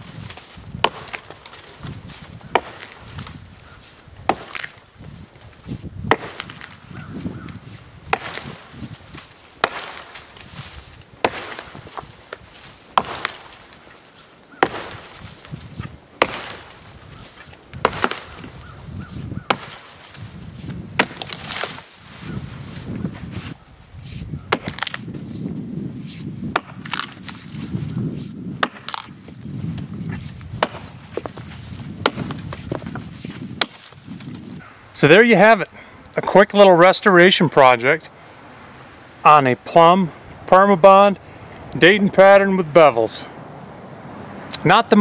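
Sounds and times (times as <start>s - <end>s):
axe chopping into wood: 0.0s - 21.9s, 24.5s - 25.3s, 26.1s - 29.2s, 30.1s - 34.4s.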